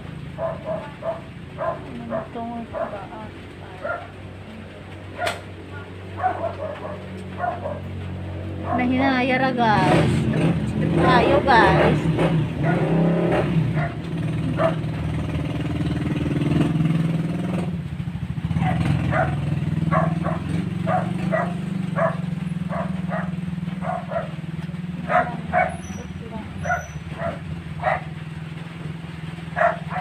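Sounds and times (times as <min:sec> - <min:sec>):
low motor hum: 0:00.0 - 0:30.0
dog barking: 0:00.4 - 0:03.1, 0:03.8 - 0:04.2, 0:05.1 - 0:05.5, 0:06.1 - 0:07.9, 0:08.6 - 0:08.9, 0:12.6 - 0:13.0, 0:13.7 - 0:15.0, 0:18.5 - 0:24.4, 0:25.0 - 0:28.2, 0:29.5 - 0:30.0.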